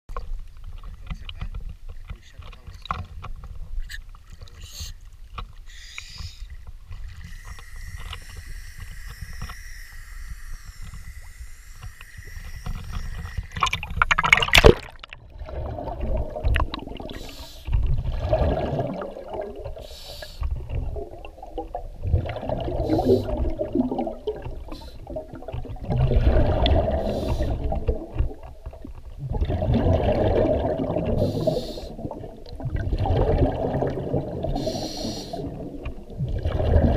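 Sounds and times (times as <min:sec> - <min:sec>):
water sloshing: 0:00.1 - 0:19.9
exhaled bubbles burbling underwater: 0:06.8 - 0:36.9
loud splash: 0:13.2 - 0:16.5.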